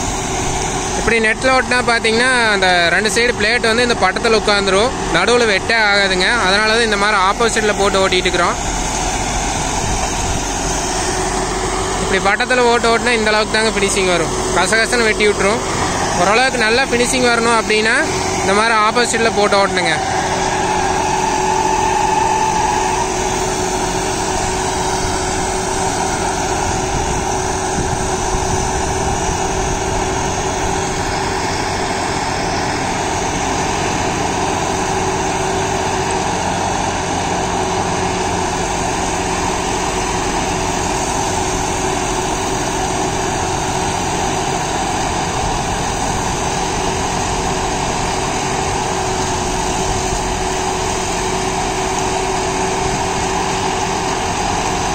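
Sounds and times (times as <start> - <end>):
diesel tractor engine running: 0.0 - 54.9
tiller blades churning soil: 0.0 - 54.9.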